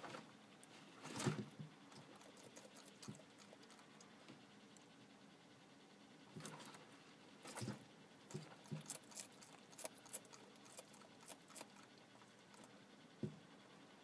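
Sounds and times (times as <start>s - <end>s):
lizard chewing crunchy clicks: 0.6s - 4.9s, 7.4s - 12.8s.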